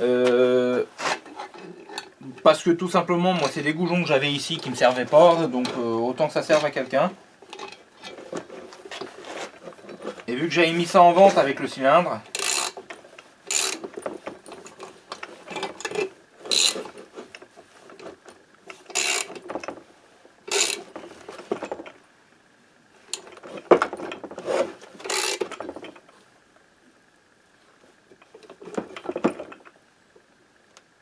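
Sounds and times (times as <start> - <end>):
ratchet wrench clicking: 12.3 - 12.8, 13.5 - 13.8, 16.5 - 16.8, 18.9 - 19.4, 20.5 - 20.9, 25.1 - 25.6.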